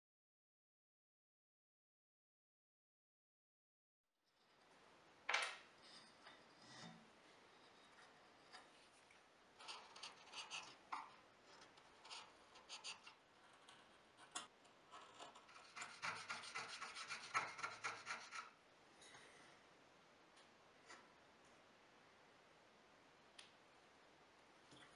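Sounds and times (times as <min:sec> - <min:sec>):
hand tools scraping on wood: 0:15.0 - 0:18.5.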